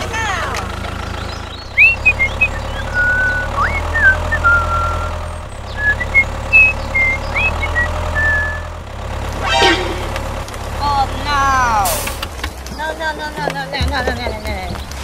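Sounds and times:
tractor engine humming: 0.0s - 15.0s
short high chirping notes: 9.4s - 10.4s.

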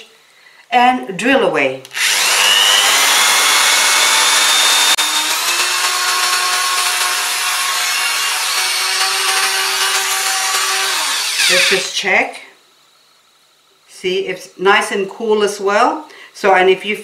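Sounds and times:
drill grinding into ceramic: 1.9s - 11.9s.

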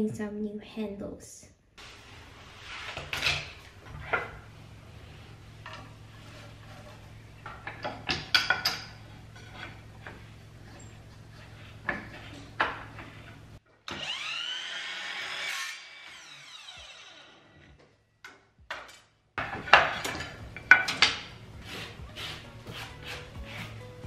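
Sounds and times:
steady low hum: 1.8s - 13.6s
wood knocking on saw: 19.4s - 24.0s.

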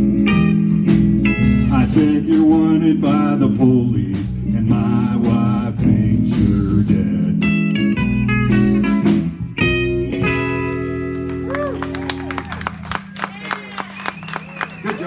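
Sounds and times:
live country-blues band: 0.0s - 15.0s
lead guitar bending notes: 7.4s - 13.1s.

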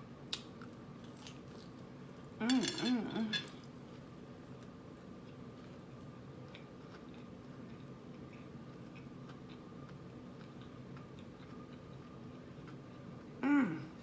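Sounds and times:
low background hum: 0.0s - 14.0s
chewing food: 3.5s - 14.0s.

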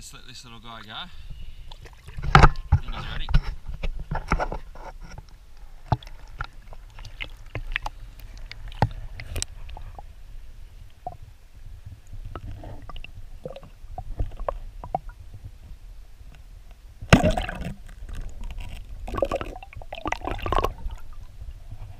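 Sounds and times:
underwater sloshing and gurgling: 0.6s - 21.9s
steady low rumble: 7.7s - 21.9s.

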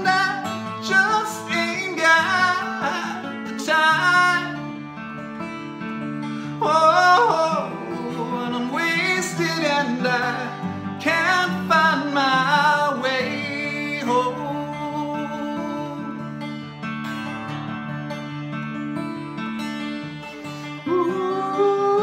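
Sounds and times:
man singing sliding notes: 0.0s - 4.7s, 6.6s - 16.2s, 20.8s - 22.0s
twelve-string acoustic guitar: 0.0s - 22.0s.

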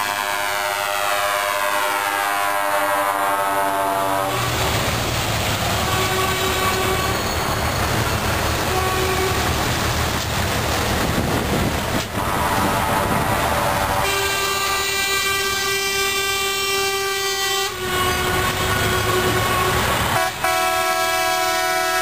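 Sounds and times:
multi-tone air horn blaring: 0.0s - 4.6s, 5.8s - 7.5s, 8.7s - 9.5s, 12.1s - 22.0s
heavy trucks rumbling past: 2.8s - 15.8s, 17.7s - 22.0s.

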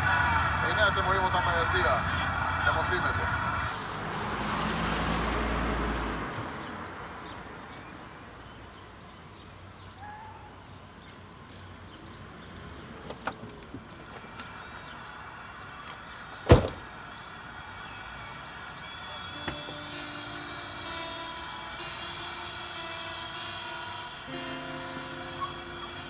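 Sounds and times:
car passing: 0.0s - 26.0s
quiet street ambience: 0.0s - 26.0s
small clicks: 11.4s - 11.8s
car door slamming: 16.4s - 16.9s, 19.4s - 19.8s.

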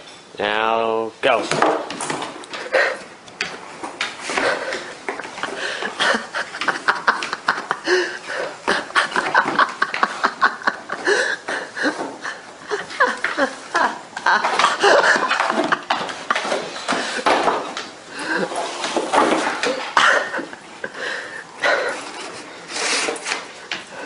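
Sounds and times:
people laughing: 4.3s - 22.6s
cardboard box scraping on floor: 18.4s - 19.7s, 21.8s - 23.7s.

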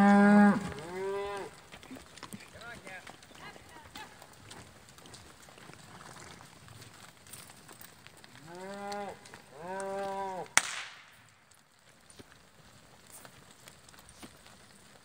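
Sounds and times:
cow mooing: 0.0s - 1.5s
whip crack: 10.6s - 11.2s.

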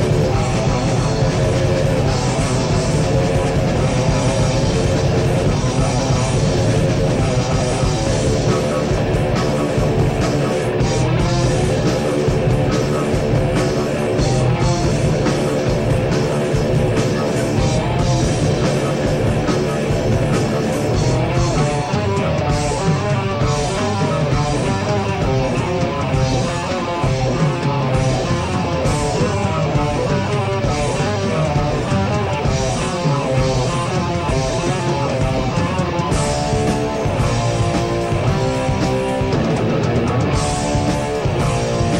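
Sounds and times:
heavy metal music: 0.0s - 41.9s.

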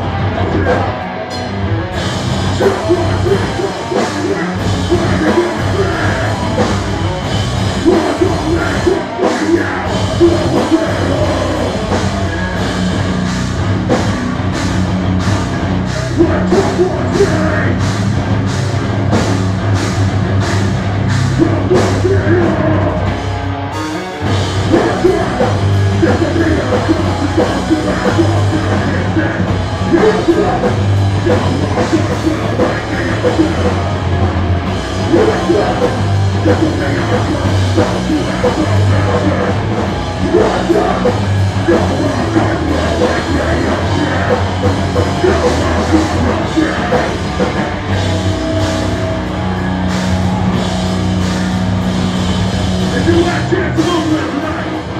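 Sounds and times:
live rock band playing: 0.0s - 54.9s
person singing: 0.1s - 1.4s, 2.4s - 12.7s, 15.9s - 17.8s, 21.3s - 23.3s, 24.6s - 34.3s, 35.0s - 49.2s.

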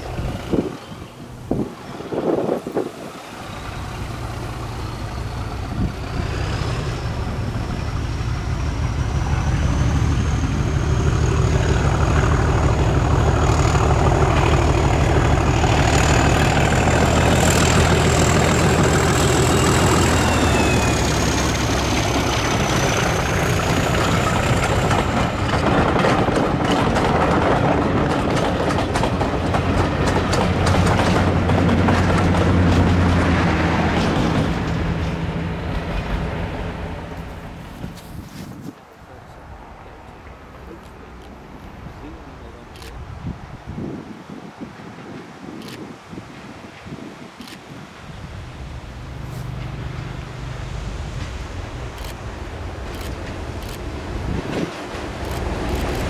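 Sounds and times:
second diesel engine drone: 0.0s - 25.4s
diesel locomotive engine drone: 0.0s - 43.7s, 44.4s - 56.0s
train wheels clattering over rail joints: 1.7s - 36.7s
turbocharger whistle: 19.4s - 21.6s.

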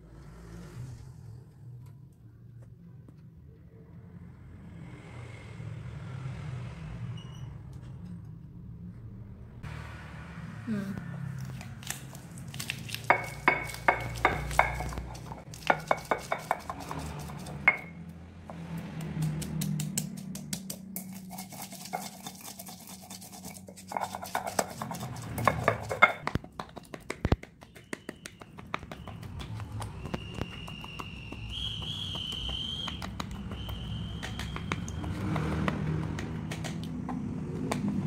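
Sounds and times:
pestle knocking in stone mortar: 13.0s - 18.0s, 23.8s - 38.0s.

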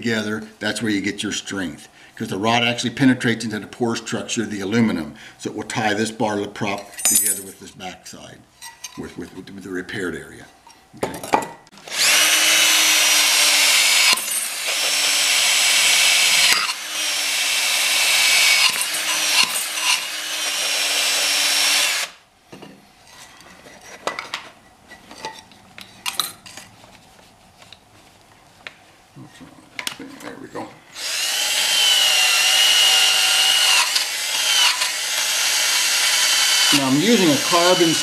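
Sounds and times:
drill motor whine: 11.8s - 22.2s, 31.0s - 38.0s.

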